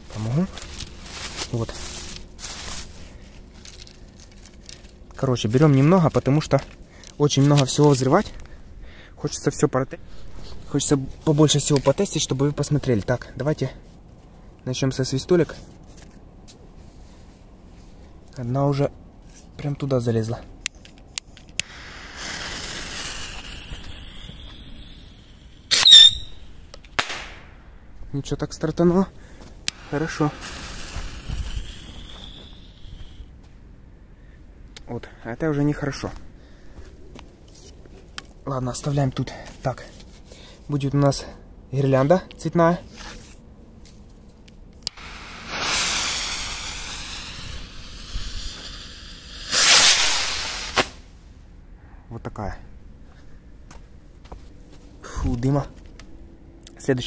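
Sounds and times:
fuse hissing: 0:21.6 - 0:26.8, 0:29.7 - 0:33.4, 0:44.9 - 0:51.0
firework high-pitched whistle: 0:21.6 - 0:27.2, 0:29.7 - 0:33.3, 0:44.9 - 0:51.0.

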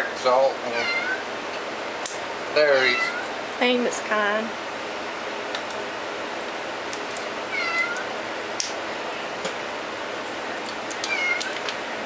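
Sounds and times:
cat meowing: 0:00.7 - 0:01.2, 0:02.8 - 0:03.3, 0:07.5 - 0:08.1, 0:11.0 - 0:11.6.

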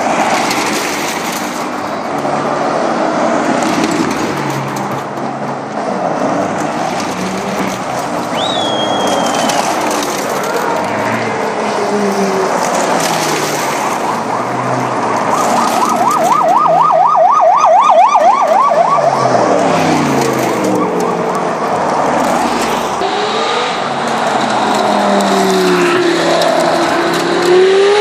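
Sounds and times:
car engines driving past: 0:00.0 - 0:28.0
siren warbling: 0:13.9 - 0:21.8.

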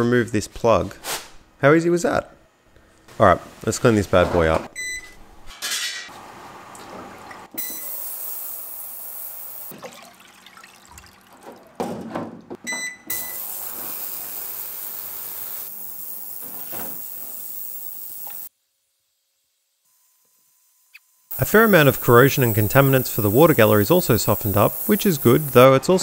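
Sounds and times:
ultrasonic cleaner beeping: 0:07.6 - 0:09.7, 0:12.7 - 0:16.4, 0:21.3 - 0:25.7
ultrasonic cleaner hissing: 0:07.6 - 0:09.7, 0:13.1 - 0:18.5, 0:21.3 - 0:25.9
water splashing and sloshing: 0:09.7 - 0:12.5.

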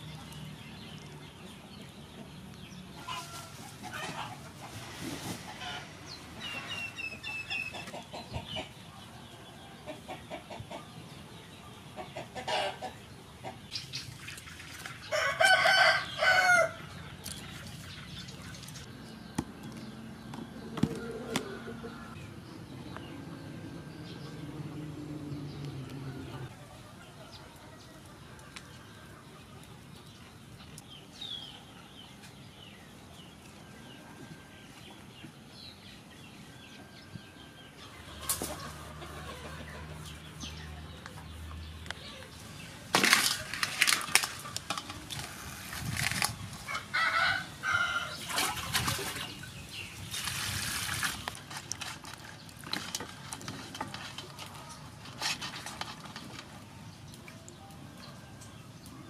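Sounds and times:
chickens clucking: 0:00.0 - 0:50.2
water splashing in metal basin: 0:14.0 - 0:15.1.

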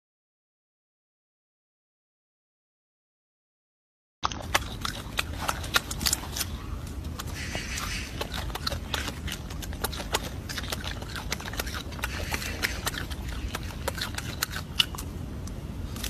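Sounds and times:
monkey chewing fruit: 0:04.2 - 0:16.0
steady low rumble: 0:04.3 - 0:16.0.

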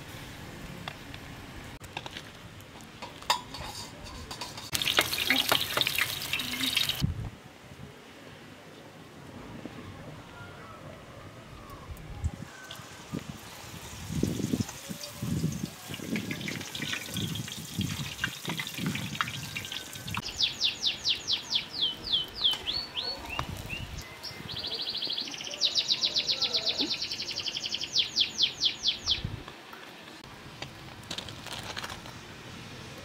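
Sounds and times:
bread frying in hot oil: 0:04.2 - 0:07.1, 0:12.8 - 0:20.2
songbird trilling: 0:19.6 - 0:29.3.

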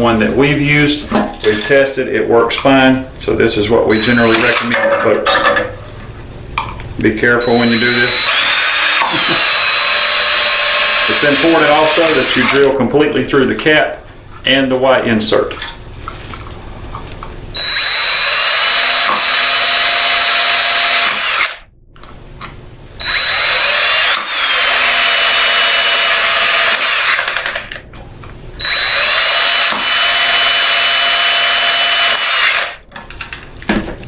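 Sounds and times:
cordless drill drilling plastic: 0:07.4 - 0:12.6, 0:17.6 - 0:21.6, 0:23.0 - 0:27.6, 0:28.6 - 0:32.8.

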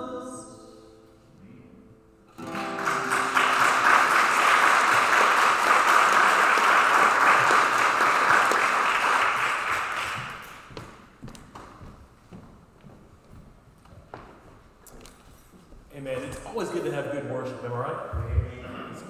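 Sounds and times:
guitar chord ringing: 0:00.2 - 0:04.2
crowd applauding: 0:02.4 - 0:10.9
footsteps on wooden stage: 0:10.0 - 0:16.0.

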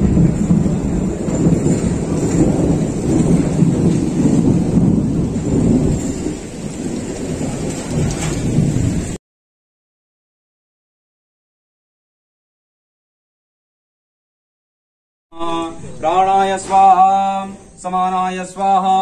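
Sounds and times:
strong stormy wind: 0:00.0 - 0:09.2
torrential rain: 0:00.0 - 0:09.2.

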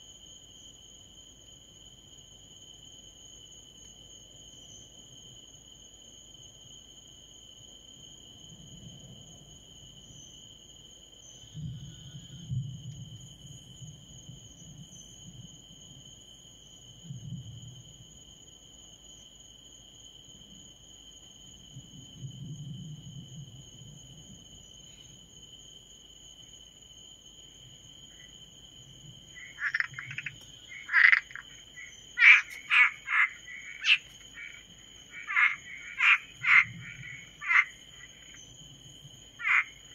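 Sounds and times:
insects trilling: 0:00.0 - 0:39.9
frogs croaking: 0:27.5 - 0:39.9.

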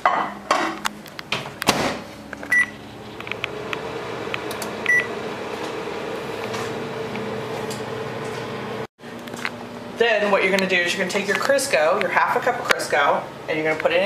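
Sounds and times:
microwave oven humming: 0:00.3 - 0:14.0
keypad beeps: 0:02.5 - 0:02.8, 0:04.9 - 0:05.1.

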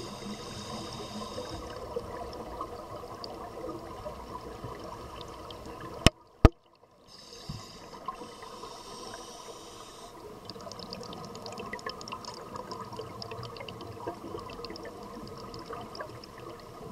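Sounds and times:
scuba regulator hissing: 0:00.0 - 0:01.7, 0:07.2 - 0:10.1
exhaled air bubbling: 0:00.0 - 0:06.7, 0:07.7 - 0:16.9.

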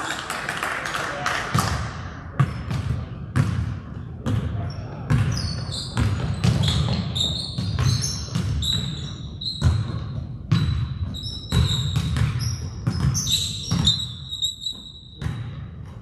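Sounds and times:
basketball bouncing on gym floor: 0:02.4 - 0:16.0
sneaker squeaks: 0:04.3 - 0:15.6.

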